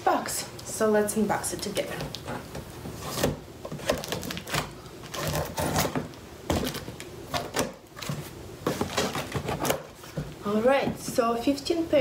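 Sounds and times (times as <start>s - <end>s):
cardboard flaps rustling: 1.7s - 11.2s.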